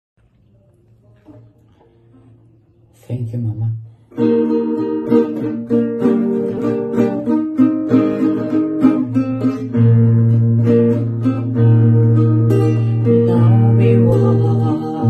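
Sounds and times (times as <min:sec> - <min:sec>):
acoustic guitar strumming: 0:04.1 - 0:15.0.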